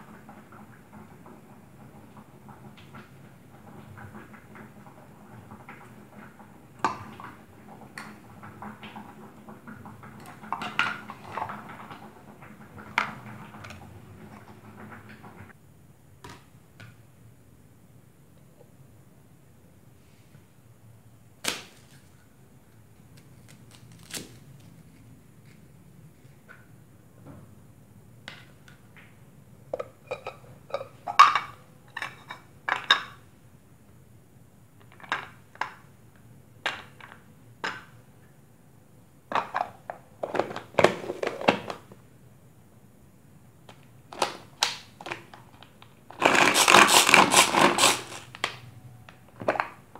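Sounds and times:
knife slicing on plastic board: 46.2s - 48.3s
utensils clinking and scraping: 46.2s - 48.4s.

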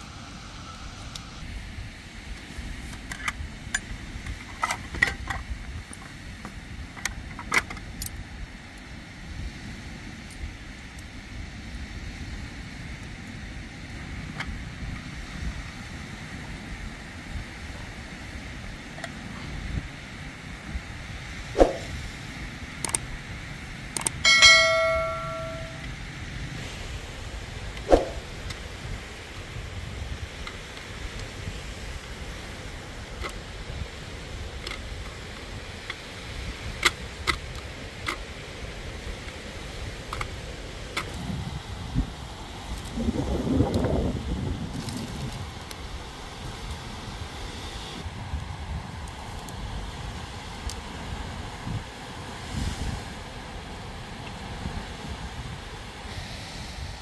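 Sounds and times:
metal object clanging: 24.3s - 25.8s.

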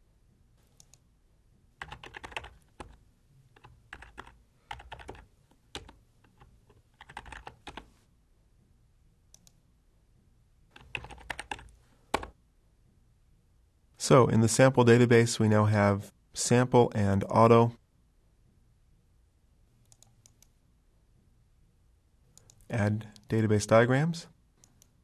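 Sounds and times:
typing on computer keyboard: 1.8s - 7.9s, 10.8s - 12.3s.

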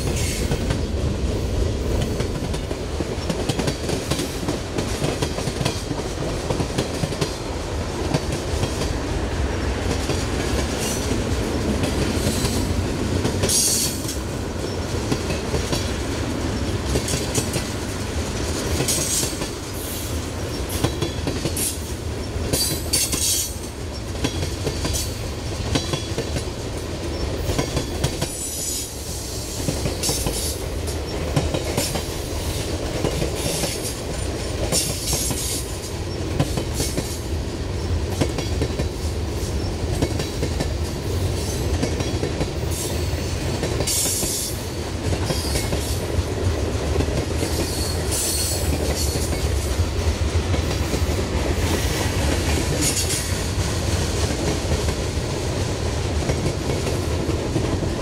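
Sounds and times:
freight train rumbling past: 0.0s - 58.0s
clicking over rail joints: 2.0s - 9.0s, 9.8s - 28.4s.

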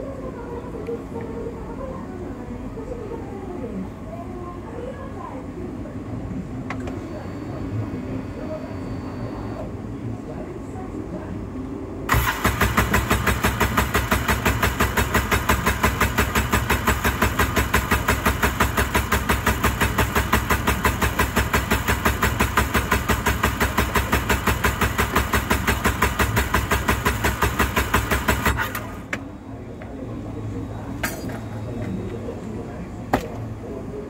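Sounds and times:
engine cranking on starter: 12.1s - 29.2s.

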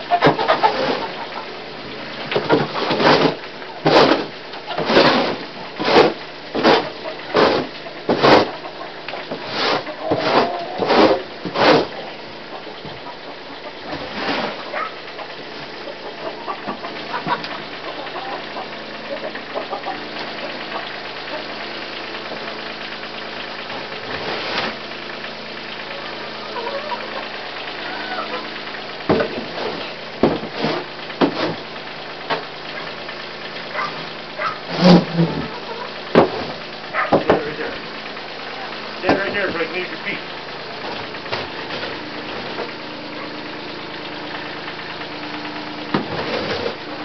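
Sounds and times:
tractor engine idling: 0.0s - 47.0s
shovel scraping concrete floor: 0.2s - 1.1s, 2.4s - 8.6s, 9.3s - 12.0s, 13.9s - 14.8s, 24.1s - 24.8s, 29.1s - 31.6s, 34.4s - 35.5s, 46.0s - 46.8s.

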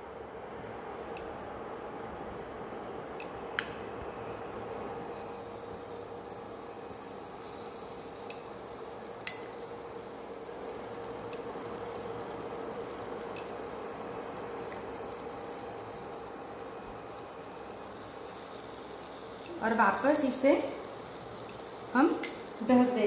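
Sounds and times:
induction cooktop hum: 0.0s - 23.0s
soft sizzling hiss: 0.0s - 23.0s
spoon clinking on pan: 22.2s - 22.5s.

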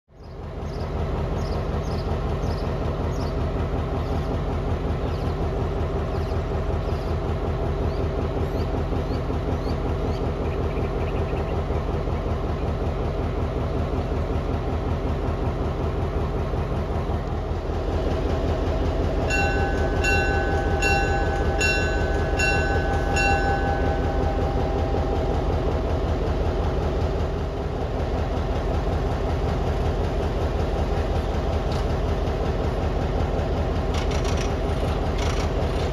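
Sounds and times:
birds chirping: 0.1s - 12.8s
locomotive engines idling: 0.1s - 35.9s
bell ringing: 19.3s - 24.2s.

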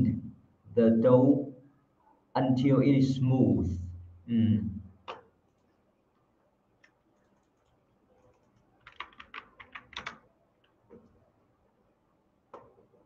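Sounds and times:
keyboard keystrokes: 7.3s - 10.2s.

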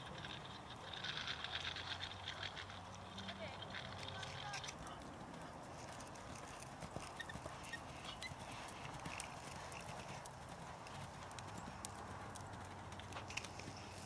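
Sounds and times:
hoofbeats on soft sand: 4.4s - 14.0s.

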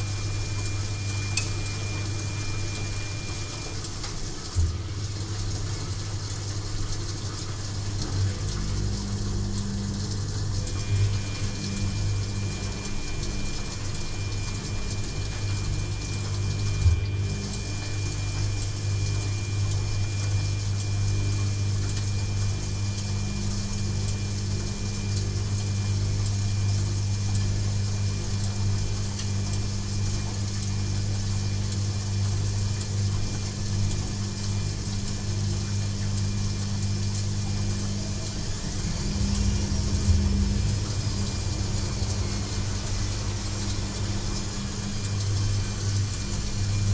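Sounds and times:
faint high whine: 0.0s - 3.9s, 10.7s - 21.2s, 36.8s - 46.9s
washing machine motor hum: 0.0s - 46.9s.

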